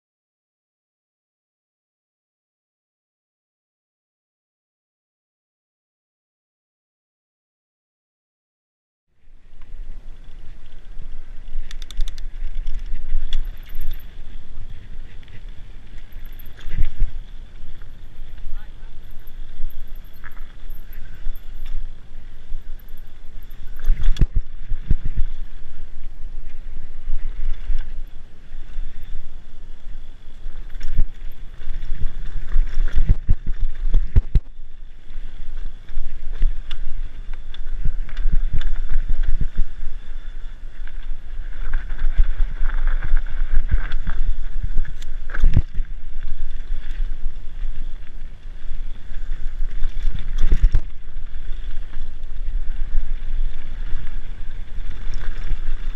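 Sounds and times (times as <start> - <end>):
wind buffeting microphone: 9.4 - 55.9
bike knocking and rattling: 9.6 - 28.2, 30.3 - 55.9.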